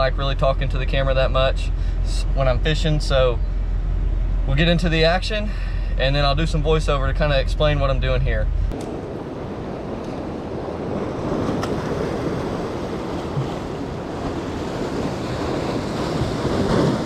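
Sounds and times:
wind buffeting microphone: 6.2 - 17.0
waves breaking on rocks: 8.7 - 17.0.

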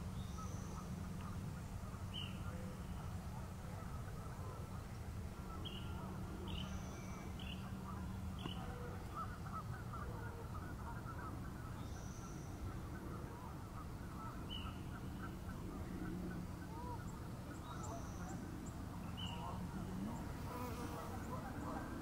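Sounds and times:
low steady rumble: 0.0 - 22.0
distant waterfowl honking: 5.5 - 18.4.

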